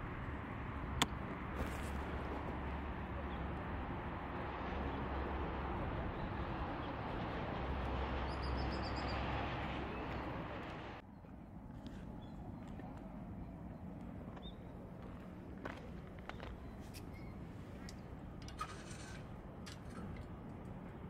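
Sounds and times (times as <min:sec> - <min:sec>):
bird chirping: 0:08.2 - 0:09.3.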